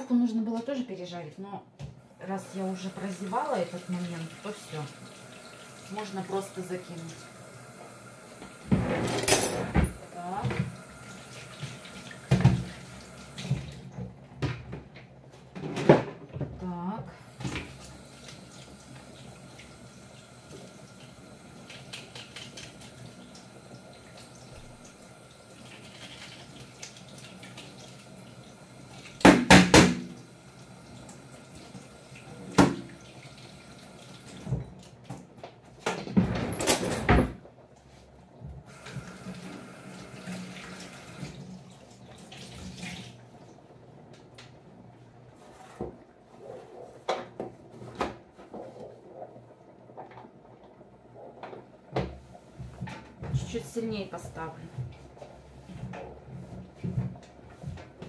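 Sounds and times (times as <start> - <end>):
knocks and clatters in sink: 11.6 - 12.8, 29.2 - 30.2, 32.5 - 33.0, 51.3 - 55.0.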